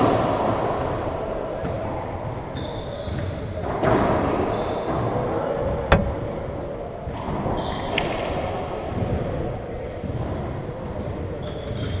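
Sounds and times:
sneakers squeaking on hardwood floor: 0:02.1 - 0:03.5
steady hall hum: 0:04.2 - 0:11.4
sharp tap: 0:05.9 - 0:06.2.

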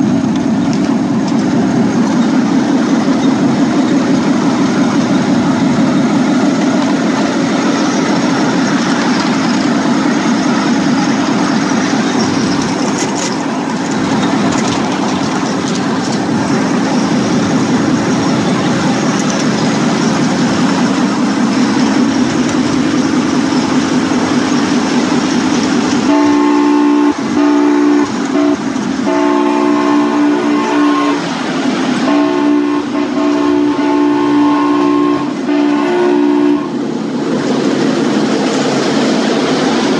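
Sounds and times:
wheels on rails: 0:00.0 - 0:39.9
miniature locomotive horn blasts: 0:26.0 - 0:31.4, 0:32.0 - 0:36.8.

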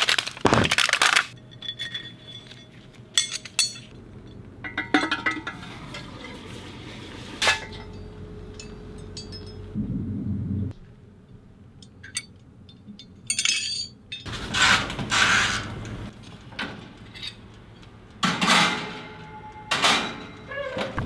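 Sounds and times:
metal and glass clinks: 0:01.3 - 0:05.5, 0:07.6 - 0:09.8, 0:12.0 - 0:14.3.

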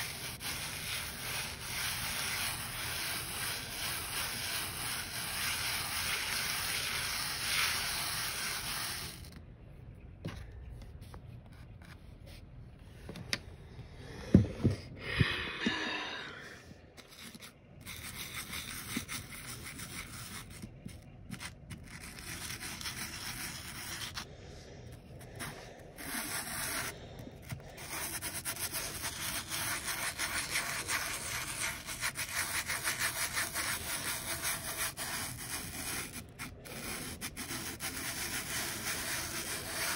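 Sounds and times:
stone rubbing through sand: 0:00.0 - 0:09.4, 0:17.0 - 0:24.3, 0:25.0 - 0:39.9.

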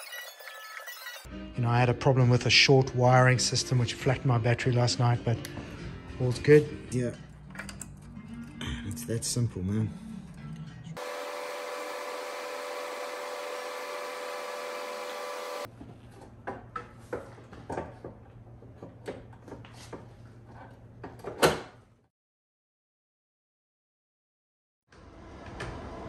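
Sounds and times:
motor-like whir: 0:11.0 - 0:15.7.

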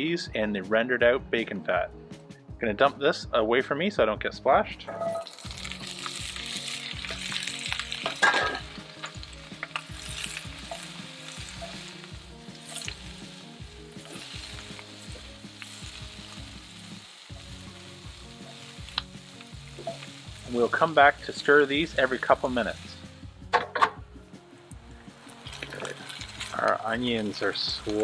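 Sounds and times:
sprouts sizzling in fat: 0:05.1 - 0:23.5, 0:24.2 - 0:28.0.

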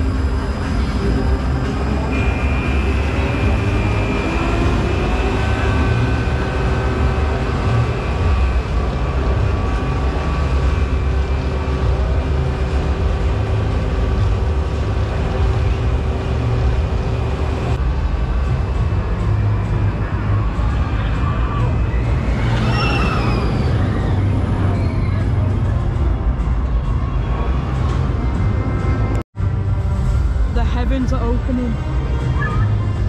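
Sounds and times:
faint steady whines: 0:00.0 - 0:24.8
vehicle rumble from inside: 0:00.0 - 0:30.6.

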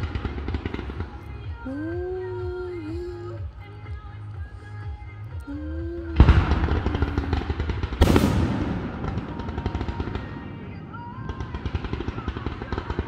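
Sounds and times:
firework crackling: 0:00.0 - 0:01.9, 0:05.9 - 0:13.0
firework shells bursting: 0:06.2 - 0:13.0.

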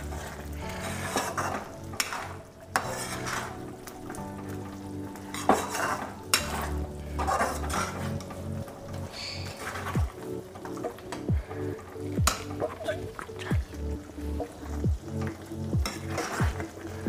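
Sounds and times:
ladle stirring thick syrup: 0:00.0 - 0:17.0.

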